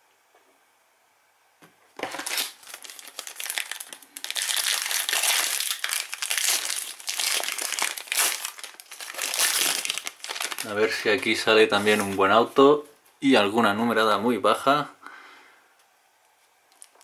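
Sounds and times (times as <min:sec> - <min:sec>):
foil wrapper crinkling: 0:02.0 - 0:12.3, 0:16.7 - 0:17.0.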